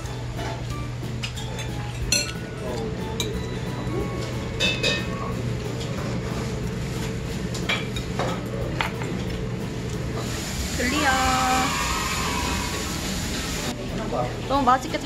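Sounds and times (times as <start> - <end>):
low restaurant hum: 0.0 - 15.0
metal chopsticks clinking on dishes: 1.2 - 3.5.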